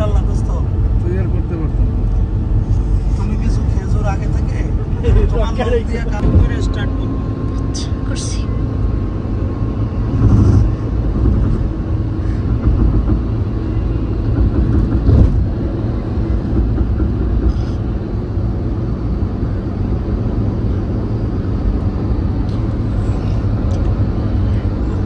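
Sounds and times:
car cabin road and engine noise: 0:00.0 - 0:25.0.

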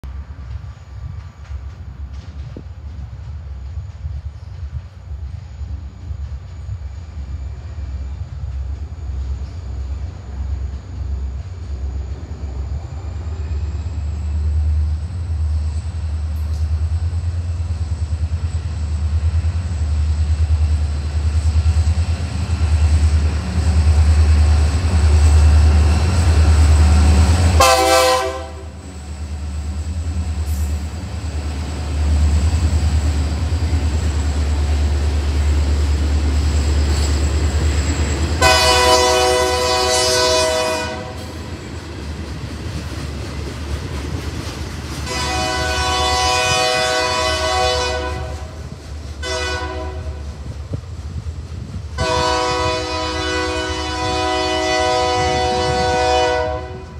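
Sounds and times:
diesel locomotive engine rumble: 0:00.0 - 0:56.9
train horn blasts: 0:26.9 - 0:28.8, 0:38.4 - 0:41.4, 0:45.1 - 0:48.6, 0:49.2 - 0:50.2, 0:52.0 - 0:56.9.

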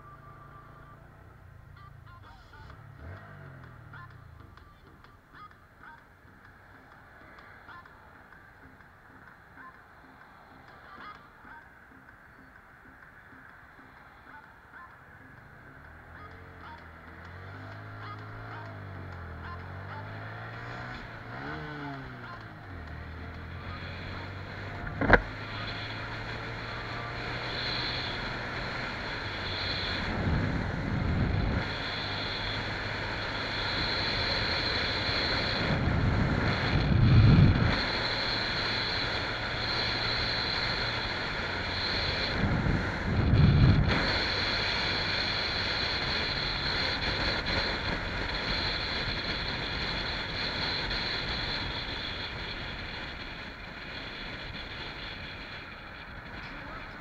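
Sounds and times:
motorcycle engine running: 0:00.0 - 0:57.0
road noise: 0:00.0 - 0:57.0
wind buffeting microphone: 0:35.7 - 0:37.8, 0:42.4 - 0:44.3.

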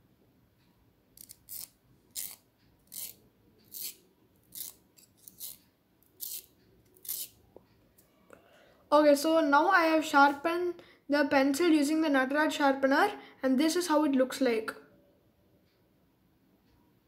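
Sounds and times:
pencil sharpener scraping wood: 0:01.2 - 0:07.4.

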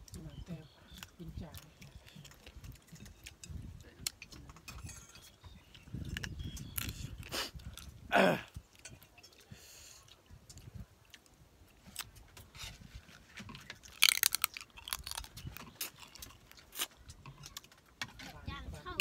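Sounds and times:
crunching crab shell: 0:13.6 - 0:17.8.

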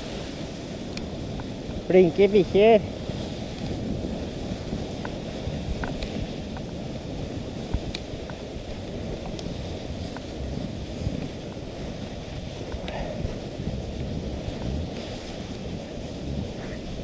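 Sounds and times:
sled runners rushing over snow: 0:00.0 - 0:17.0
wind on microphone: 0:00.0 - 0:17.0
faint ticks: 0:04.9 - 0:06.7, 0:07.7 - 0:10.3, 0:12.6 - 0:13.1.

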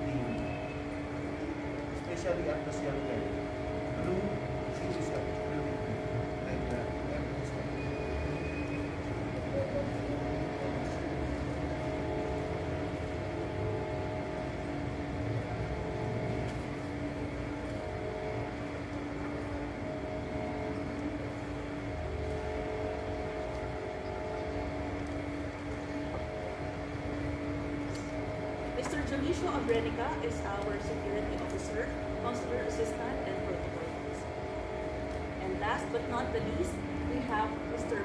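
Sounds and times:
machine motor humming: 0:00.0 - 0:38.0.

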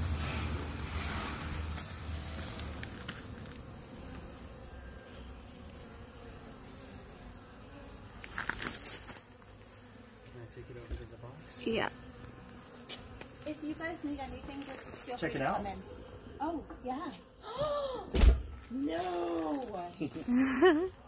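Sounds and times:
burst of noise: 0:00.0 - 0:02.8
bees buzzing: 0:00.0 - 0:21.0.

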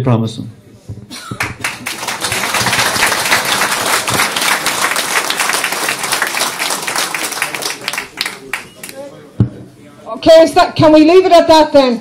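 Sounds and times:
audience applauding: 0:01.4 - 0:09.0.

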